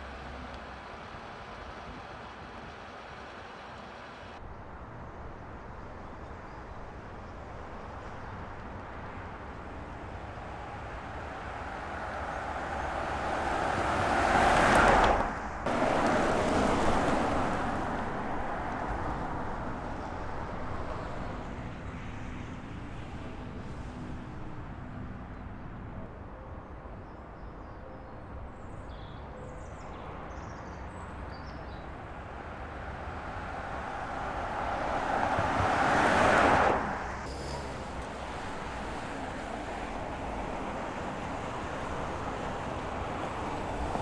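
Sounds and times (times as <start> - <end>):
car driving past: 11.3 - 20.0, 33.0 - 44.0.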